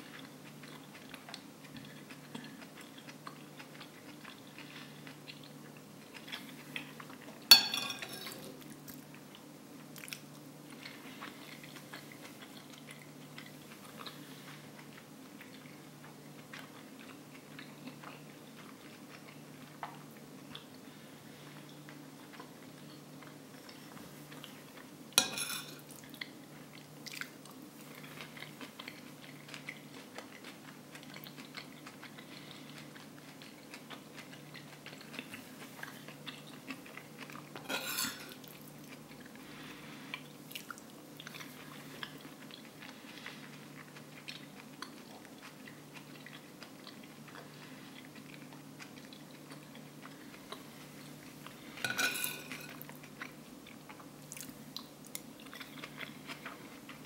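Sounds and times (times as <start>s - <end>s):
faint low hum: 0.0s - 57.0s
quiet chewing: 0.0s - 57.0s
metal spoon scraping a plate: 25.2s - 25.8s, 37.6s - 38.4s, 51.8s - 52.8s.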